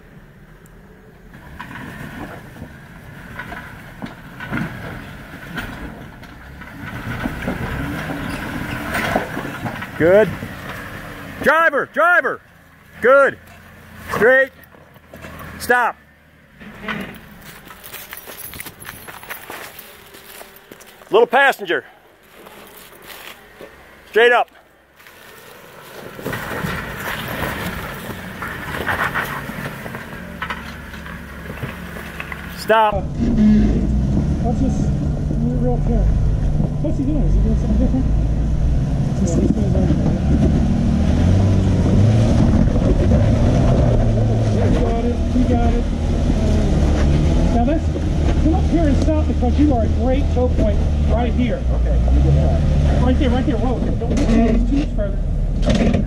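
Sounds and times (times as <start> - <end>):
vehicle engine running low: 0.0 - 56.0
tyres crunching over rock: 16.6 - 32.9.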